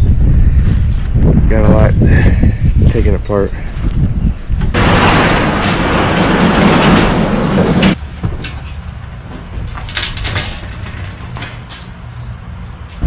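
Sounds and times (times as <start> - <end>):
low rumble: 3.9 - 8.0
garage door rattling up tracks: 4.6 - 11.8.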